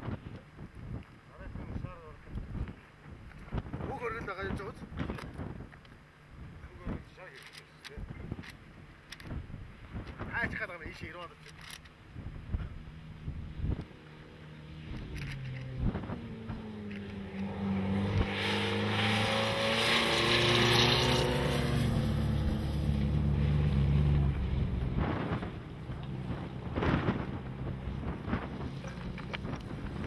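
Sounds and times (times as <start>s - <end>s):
truck engine driving past: 13.9s - 29.2s.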